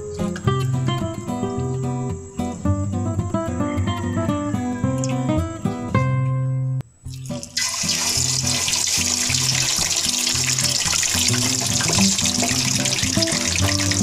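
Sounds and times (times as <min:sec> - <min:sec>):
guitar music: 0:00.0 - 0:14.0
meat deep-frying in oil: 0:07.0 - 0:14.0.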